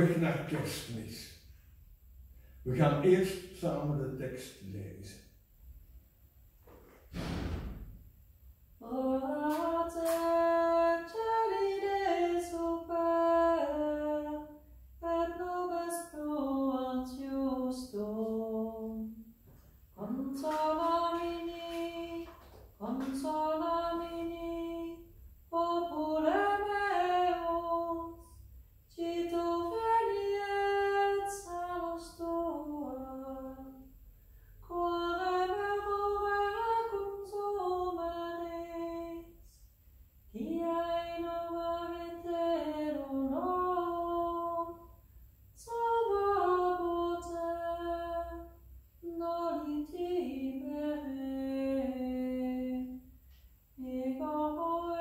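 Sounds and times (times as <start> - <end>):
woman singing a chant: 8.8 - 19.2, 20.0 - 33.9, 34.6 - 39.5, 40.3 - 44.9, 45.6 - 53.0, 53.8 - 55.0.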